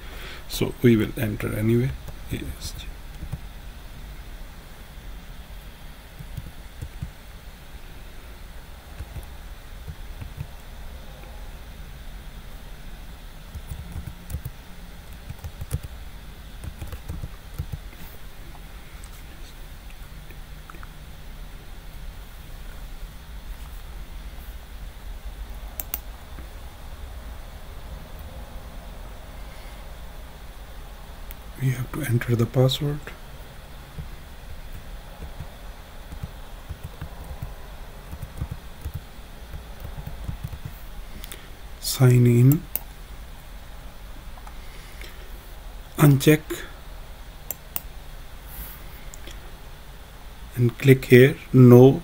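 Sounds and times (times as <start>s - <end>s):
steady low hum: 0.0s - 52.0s
computer keyboard keys tapping: 3.1s - 3.4s, 6.2s - 7.2s, 9.0s - 10.6s, 13.5s - 16.0s, 16.6s - 17.9s, 34.7s - 35.5s, 36.1s - 40.8s.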